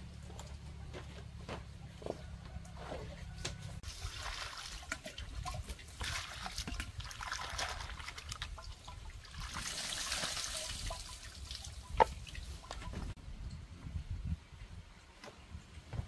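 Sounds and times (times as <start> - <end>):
water pouring into basin: 3.8 - 11.9.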